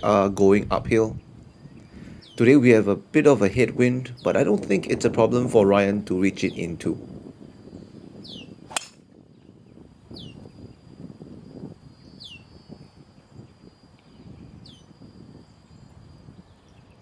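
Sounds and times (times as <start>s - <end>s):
wind rumble on microphone: 0.0s - 17.0s
golf club striking ball: 8.7s - 9.0s.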